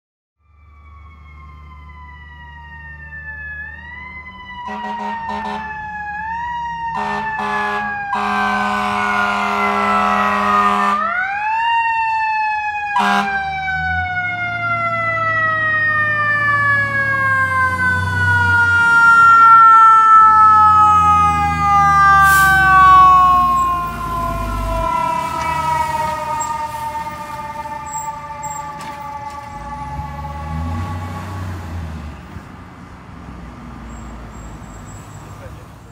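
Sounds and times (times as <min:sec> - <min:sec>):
fire engine siren: 0:00.4 - 0:35.9
fire engine horn blast: 0:04.6 - 0:05.9, 0:06.8 - 0:11.3, 0:12.9 - 0:13.6, 0:20.1 - 0:28.9
diesel engine rumbling: 0:13.0 - 0:35.9.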